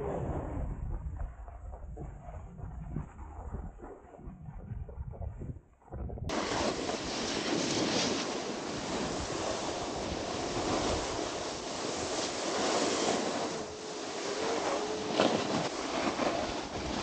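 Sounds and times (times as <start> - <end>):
wind buffeting microphone: 0.0 - 17.0
snowboard scraping over snow: 6.3 - 17.0.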